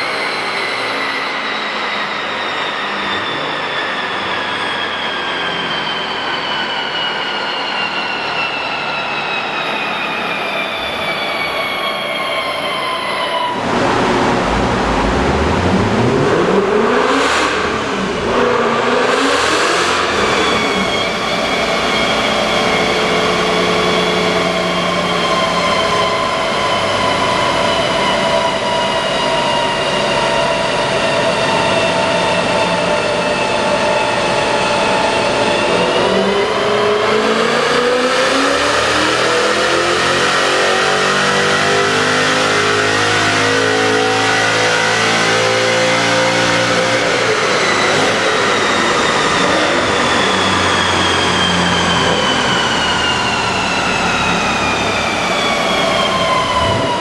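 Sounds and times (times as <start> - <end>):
high whine from rollers: 0.0 - 41.0, 41.6 - 57.0
engine revving on dynamometer: 13.5 - 28.7, 35.5 - 57.0.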